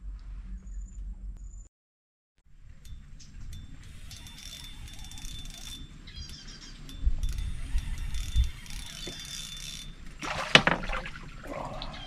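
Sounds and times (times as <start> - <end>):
fishing reel gears whirring: 2.6 - 10.8.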